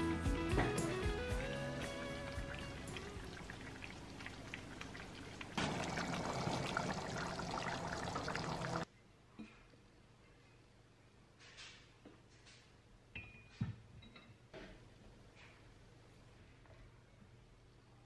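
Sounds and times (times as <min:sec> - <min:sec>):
pork simmering in sauce: 0:01.6 - 0:08.9.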